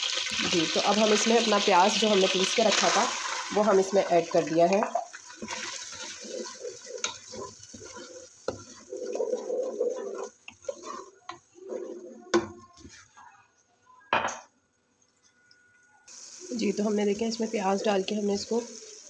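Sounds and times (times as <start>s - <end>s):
paste bubbling in hot oil: 0.0s - 11.6s
wooden spoon knocking a pan: 12.3s - 13.0s.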